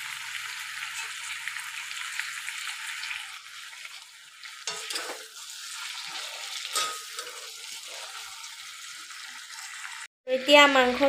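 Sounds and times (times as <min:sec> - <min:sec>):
meat and potatoes sizzling in oil: 0:00.0 - 0:11.0
spatula scraping a pan: 0:03.0 - 0:10.0.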